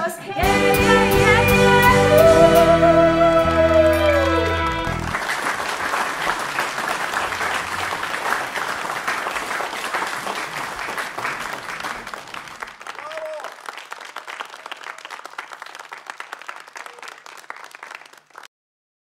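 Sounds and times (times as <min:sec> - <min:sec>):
band holding a chord: 0:00.4 - 0:05.2
audience applause: 0:01.7 - 0:18.5.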